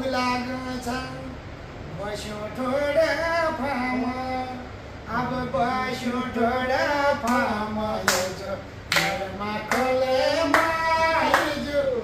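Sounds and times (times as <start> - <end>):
sharp clap-like beats: 7.3 - 11.7.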